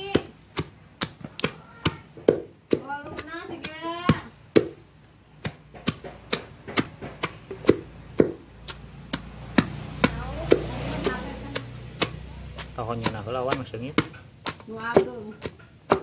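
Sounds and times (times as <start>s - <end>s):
pestle pounding in mortar: 0.0s - 16.0s.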